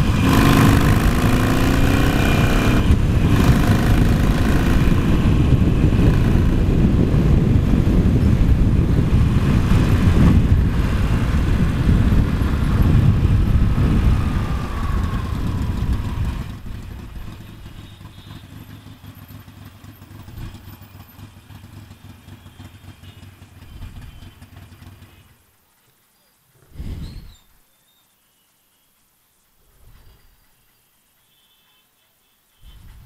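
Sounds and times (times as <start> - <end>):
motorcycle riding: 0.0 - 25.4
motorcycle idling: 0.0 - 25.5.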